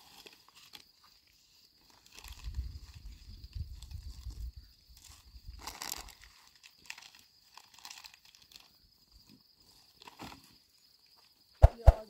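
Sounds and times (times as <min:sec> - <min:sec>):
plastic wrapper crinkling: 0:05.6 - 0:08.7
sharp knock: 0:11.6 - 0:12.0.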